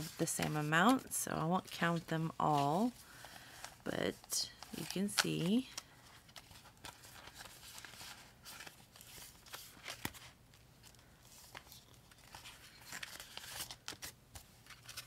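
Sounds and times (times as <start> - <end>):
paper banknotes rustling: 0.0 - 15.0
plastic pouches crinkling: 2.6 - 10.2.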